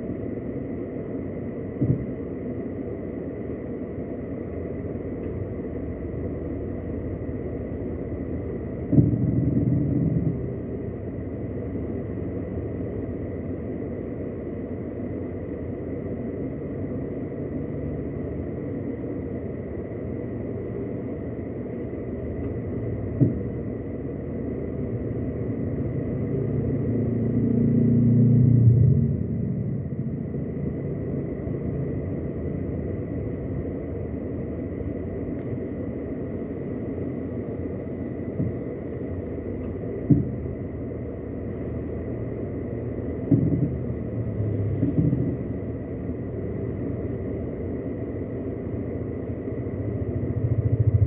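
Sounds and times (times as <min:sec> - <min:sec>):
car engine and road noise: 0:00.0 - 0:51.0
vehicle approaching: 0:25.0 - 0:33.4, 0:41.5 - 0:47.5, 0:49.1 - 0:51.0.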